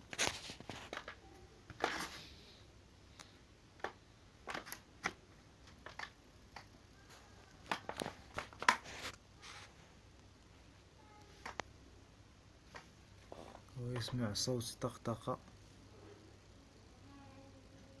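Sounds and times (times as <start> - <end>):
cable rustling: 0.0 - 2.3, 3.8 - 9.8.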